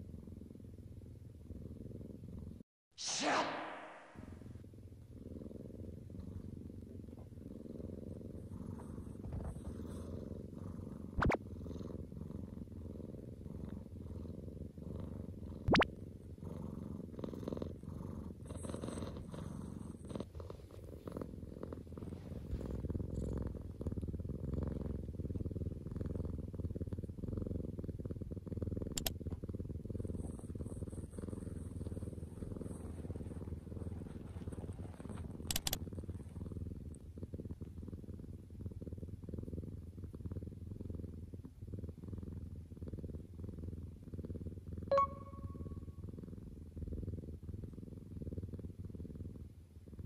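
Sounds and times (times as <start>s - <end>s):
cat purring: 0.0s - 2.6s, 4.2s - 50.0s
short sharp clicks: 35.5s - 35.8s.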